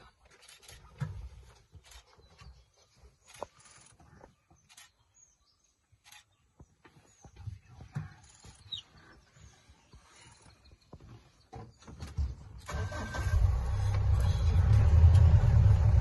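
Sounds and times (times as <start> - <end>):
high bird chirps: 8.2 - 11.0.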